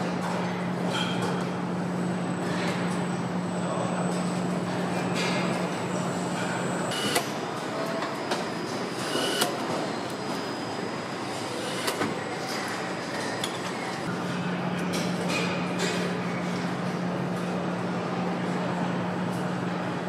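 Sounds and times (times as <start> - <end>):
machinery noise: 1.8 - 14.2.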